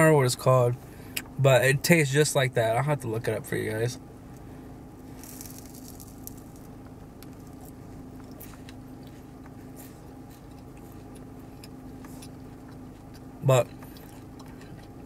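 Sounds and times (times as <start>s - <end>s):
steady low hum: 0.0s - 15.0s
person chewing crunchy candy: 5.2s - 6.7s, 7.3s - 15.0s.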